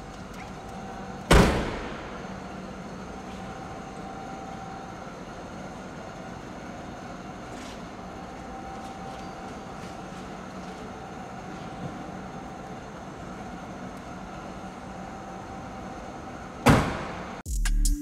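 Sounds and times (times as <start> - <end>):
room ambience hum: 0.0 - 17.4
loud bang ringing in a room: 1.3 - 2.3, 16.6 - 17.4.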